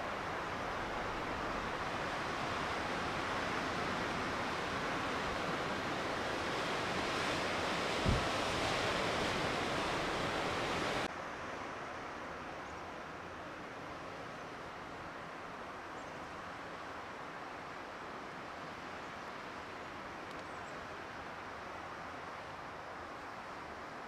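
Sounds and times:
low thump: 8.0s - 8.3s.

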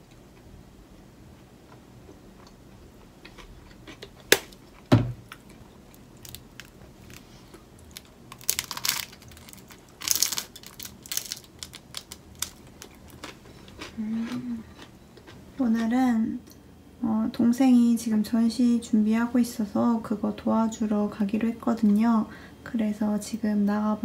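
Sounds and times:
crunchy toast bites and chewing: 2.4s - 15.4s.

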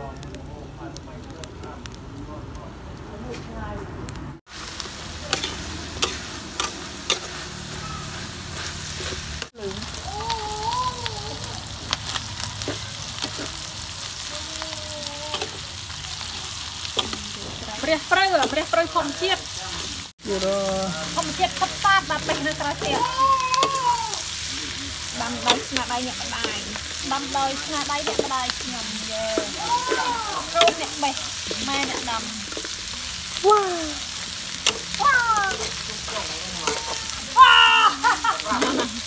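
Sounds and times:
meat sizzling in a wok: 0.0s - 2.8s, 4.1s - 39.0s
metal spatula scraping a pan: 5.3s - 9.5s, 21.2s - 33.0s, 35.5s - 37.2s, 38.4s - 39.0s.

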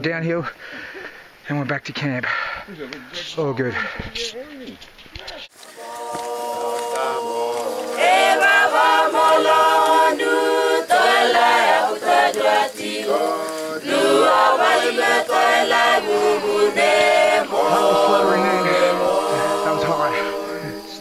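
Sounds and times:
unaccompanied group singing: 5.6s - 21.0s.

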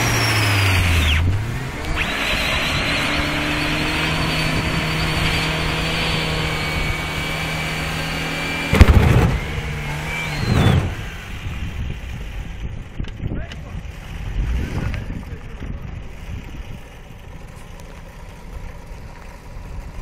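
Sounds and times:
engine at high revs: 0.0s - 12.5s, 13.8s - 17.0s
sharp bang: 8.7s - 9.7s.

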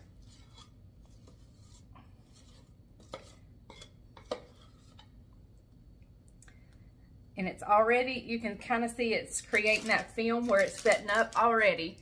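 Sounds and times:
spatula scraping pot: 0.0s - 5.2s.

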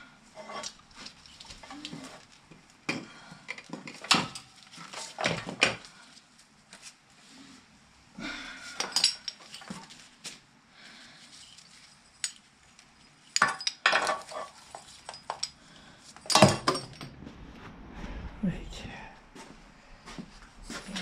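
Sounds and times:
metal tools clinking: 8.7s - 10.0s, 11.4s - 17.0s.

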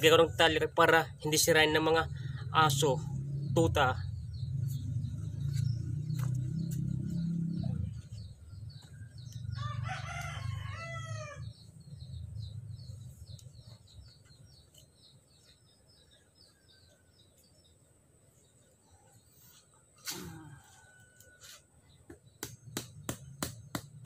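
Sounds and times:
low rumble: 2.0s - 9.6s
rooster crowing: 9.5s - 11.6s, 20.3s - 21.7s.

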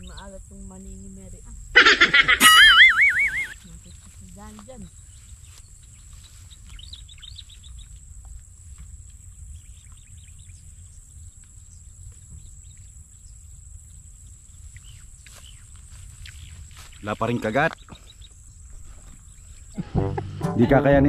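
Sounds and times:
small birds chirping: 0.0s - 19.9s
high-pitched hum: 19.8s - 21.0s.

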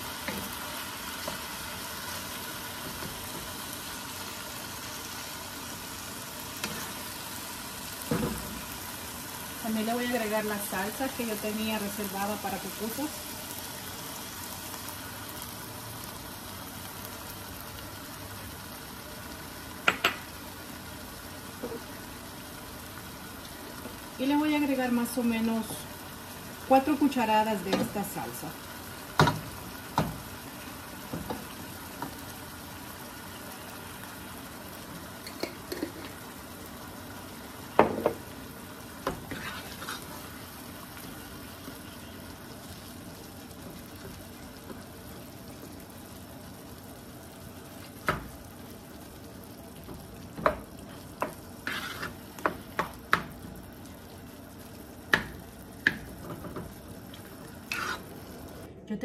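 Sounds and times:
sauce sizzling in a pot: 0.0s - 58.7s
wooden spoon stirring: 39.1s - 40.2s, 51.0s - 52.9s, 57.7s - 58.1s.

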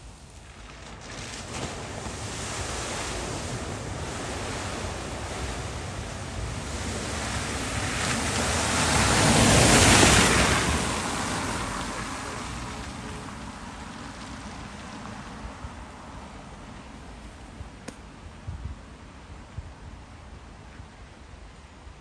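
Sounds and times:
car tyres splashing through water: 0.0s - 17.2s.

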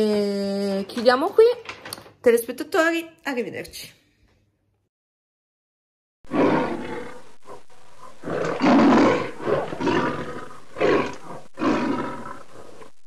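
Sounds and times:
lion roaring: 6.3s - 12.9s.

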